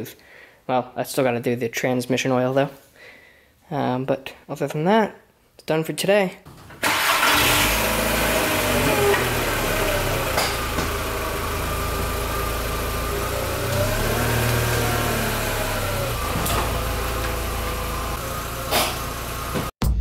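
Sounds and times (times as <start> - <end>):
car engine idling: 6.8 - 19.7.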